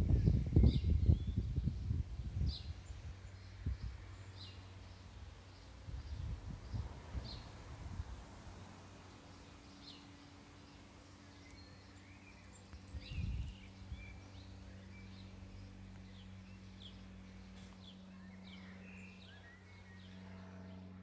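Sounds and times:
steady low hum: 0.0s - 21.0s
birds chirping and singing: 9.4s - 20.9s.

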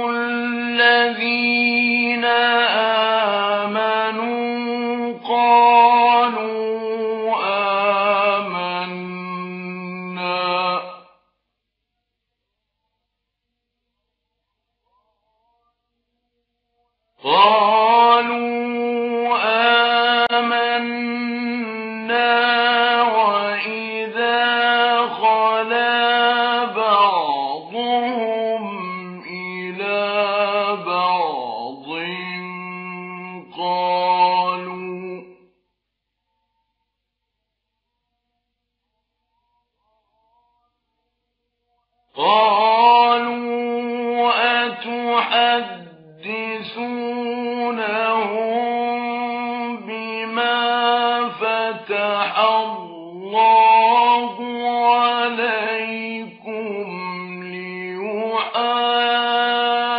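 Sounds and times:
man chanting melodically: 0.0s - 11.3s, 17.2s - 35.5s, 42.1s - 59.9s.

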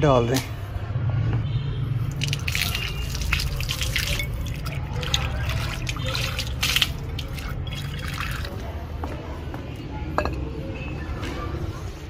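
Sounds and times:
water pouring into bowl: 2.1s - 8.7s.

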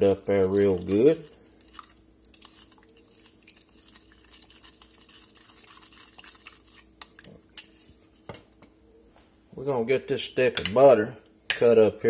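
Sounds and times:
spoon scraping plastic cup: 0.3s - 8.0s.

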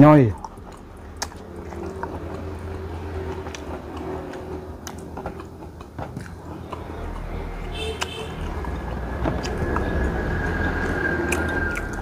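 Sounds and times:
steady low hum: 0.0s - 12.0s
fingers picking at food: 0.3s - 7.3s
person chewing food: 0.3s - 12.0s.

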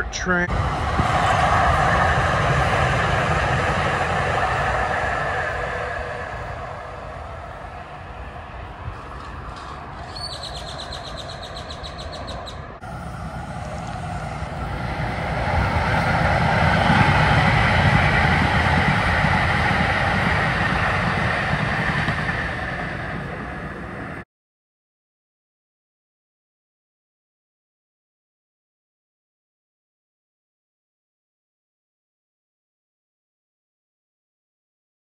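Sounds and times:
light rail train passing: 0.0s - 24.2s
outdoor background noise: 0.0s - 24.2s.

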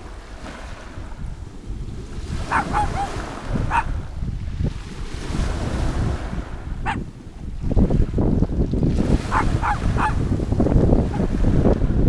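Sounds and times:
surf on a pebble beach: 0.0s - 12.0s
wind buffeting microphone: 0.0s - 12.0s
short animal calls: 2.5s - 3.9s.

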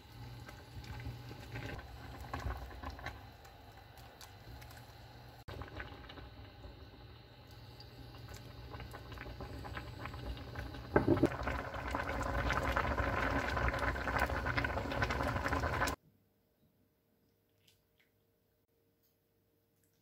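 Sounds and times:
soup bubbling in pot: 0.0s - 16.0s.

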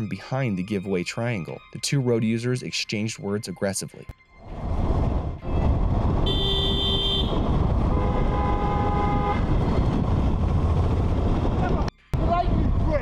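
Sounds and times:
low road noise: 4.1s - 13.0s
vehicle horn honks: 6.2s - 9.5s.

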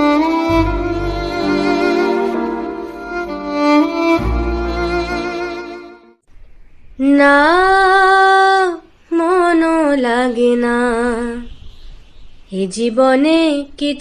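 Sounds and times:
violin note: 0.0s - 6.2s
woman singing with vibrato: 7.0s - 11.5s.

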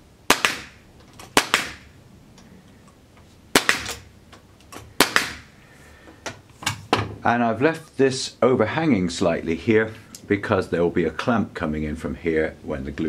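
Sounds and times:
nail gun firing into wood: 0.3s - 1.9s, 3.5s - 4.1s, 5.0s - 5.5s.

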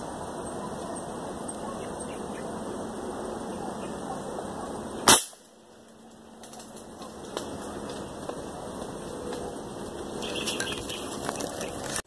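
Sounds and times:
air rifle shot: 5.0s - 5.5s.

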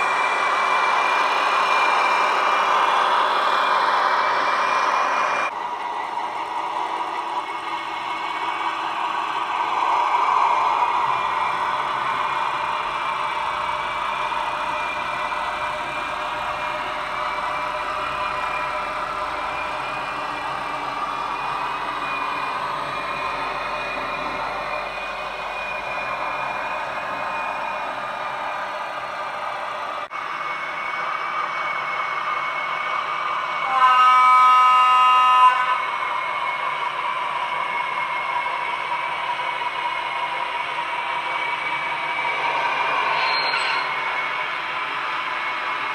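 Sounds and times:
model locomotive droning: 0.0s - 45.9s
faint wavering whine: 7.3s - 32.8s
locomotive horn blast: 33.6s - 35.8s.

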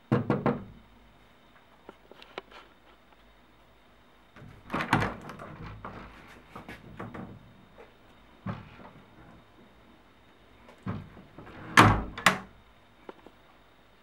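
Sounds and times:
wooden door thudding: 0.1s - 0.8s, 4.4s - 7.8s, 8.4s - 9.7s, 10.8s - 12.6s
knocks and scrapes: 4.4s - 9.8s.

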